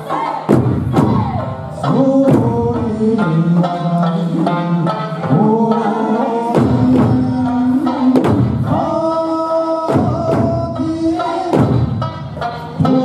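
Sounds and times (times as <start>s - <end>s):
folk song singing: 0.0s - 13.0s
large barrel drum: 0.4s - 3.2s, 6.5s - 9.1s, 9.8s - 13.0s.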